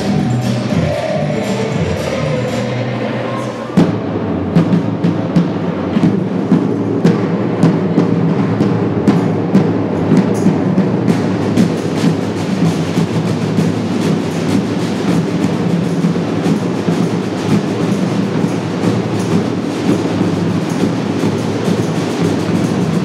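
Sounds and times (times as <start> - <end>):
samba drum group playing: 0.0 - 23.0.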